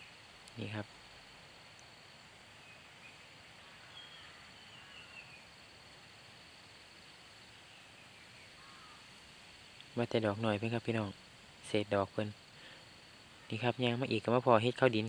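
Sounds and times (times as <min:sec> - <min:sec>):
faint steady hiss: 0:00.0 - 0:15.0
faint bird chirps: 0:01.7 - 0:05.8, 0:07.4 - 0:09.2, 0:09.9 - 0:15.0.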